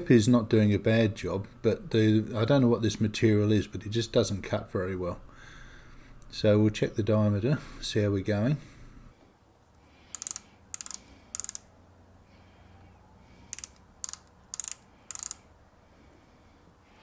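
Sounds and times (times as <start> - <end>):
micrometer ratchet clicking: 10.1 - 11.7, 13.5 - 15.5.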